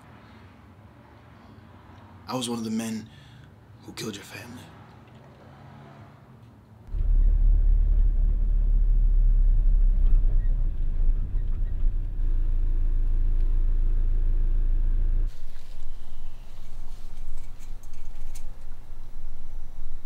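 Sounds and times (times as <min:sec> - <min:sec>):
car cabin rumble: 0:06.9 - 0:16.4.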